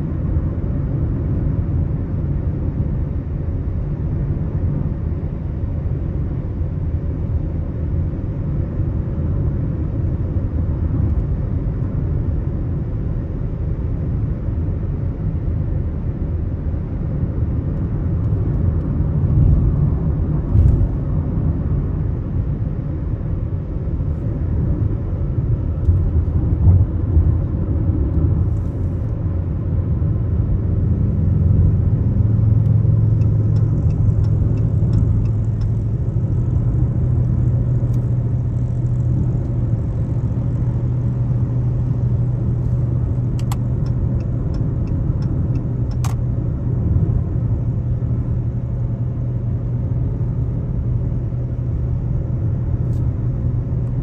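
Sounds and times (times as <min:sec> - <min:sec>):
car road and engine rumble: 0:00.0 - 0:54.0.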